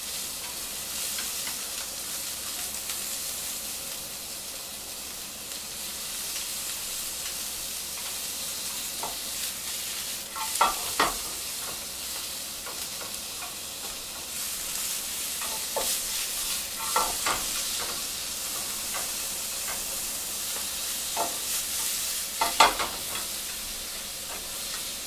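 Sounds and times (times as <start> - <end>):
food sizzling in frying pan: 0.0 - 25.0
chopsticks clicking on pan: 0.4 - 2.7, 10.3 - 14.4, 15.4 - 16.0, 16.8 - 24.9.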